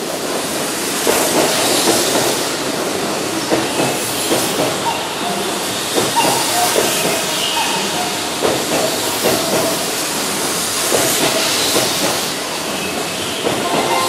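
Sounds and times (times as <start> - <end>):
electric train running: 0.0 - 14.0.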